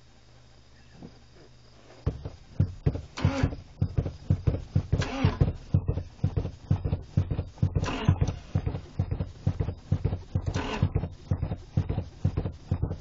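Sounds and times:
engine sputters: 2.1 - 13.0
car engine cranking: 3.0 - 4.0, 4.8 - 6.3, 7.6 - 9.1, 10.1 - 11.9.

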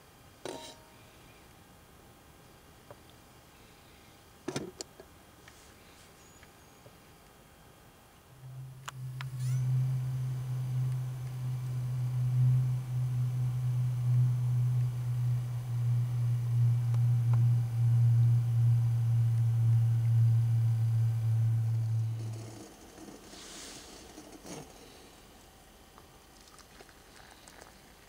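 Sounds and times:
low droning tone: 8.3 - 23.3.

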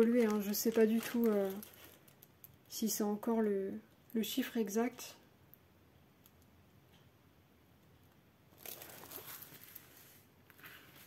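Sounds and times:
plastic crinkling rustle: 0.0 - 3.0, 8.5 - 11.0.

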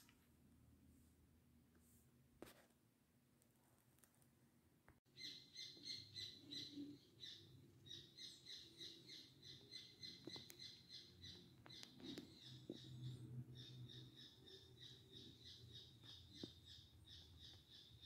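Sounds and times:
bird chirping: 5.1 - 18.0.

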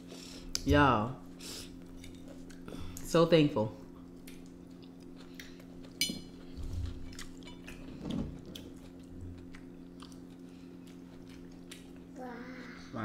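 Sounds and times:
steady low hum: 0.0 - 13.0
soft chewing: 3.8 - 12.1.

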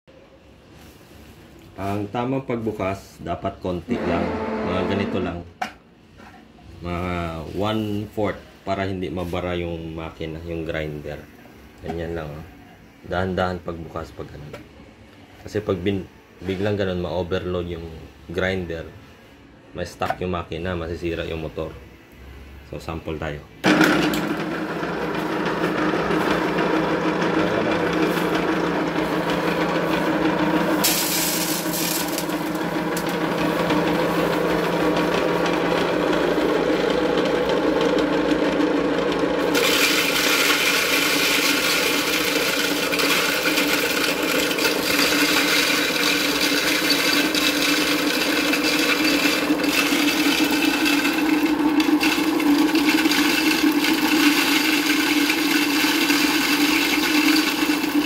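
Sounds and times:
electric grinder humming: 23.6 - 58.0
corn grinding with gritty rasp: 24.2 - 58.0.

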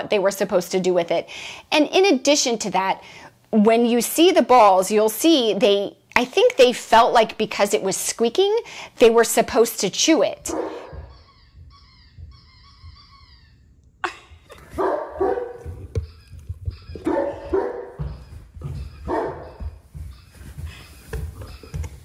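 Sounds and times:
dog barking: 10.5 - 11.2, 14.8 - 18.2, 19.0 - 19.7
faint high wavering squeak: 10.8 - 13.7.

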